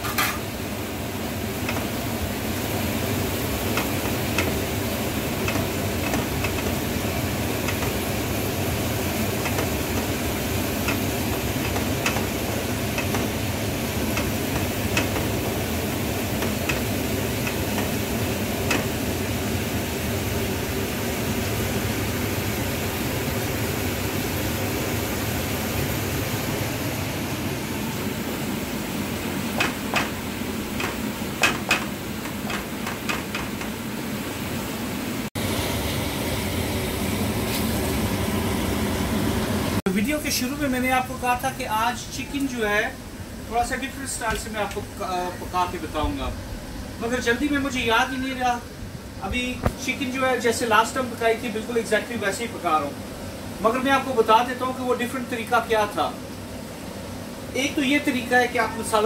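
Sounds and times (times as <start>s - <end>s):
food sizzling in a pan: 0.0s - 25.9s
spatula knocking against pan: 3.7s - 4.7s, 5.4s - 7.0s, 7.6s - 8.1s, 9.4s - 13.4s, 14.0s - 18.0s, 18.6s - 19.0s, 29.6s - 33.8s.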